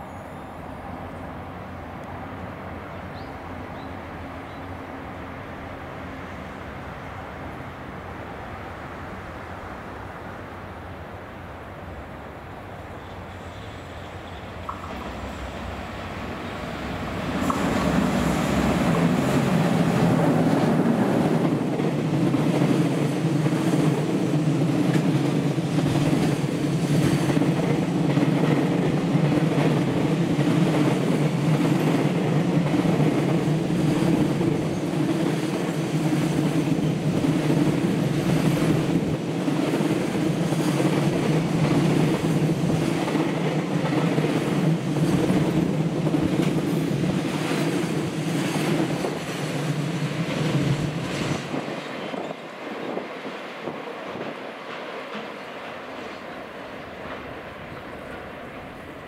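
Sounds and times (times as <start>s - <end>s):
electric locomotive passing: 0.0s - 59.0s
train wheels on rail: 0.0s - 59.0s.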